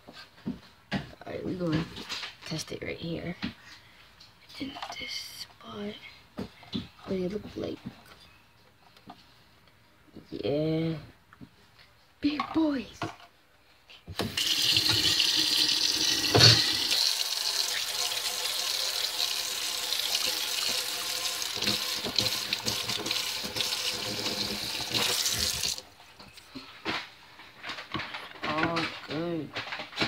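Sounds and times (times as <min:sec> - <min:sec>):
water running from a tap: 0:14.2 - 0:25.8.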